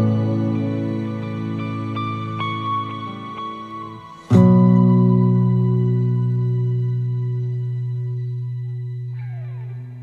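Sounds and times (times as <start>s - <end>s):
soft instrumental music: 0.0s - 10.0s.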